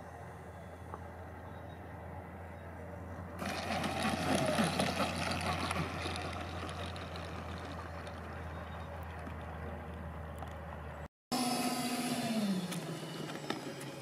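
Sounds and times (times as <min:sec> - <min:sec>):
low hum: 0:00.0 - 0:14.0
electric ducted fans rushing: 0:03.2 - 0:10.8.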